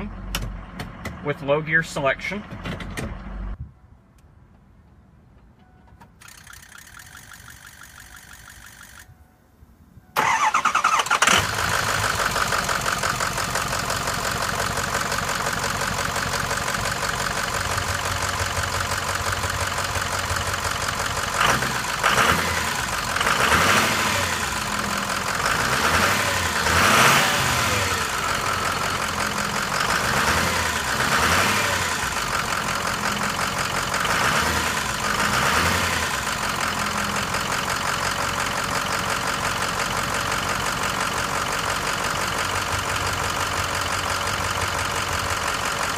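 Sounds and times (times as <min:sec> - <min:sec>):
diesel engine idling: 0:10.1 - 0:45.9.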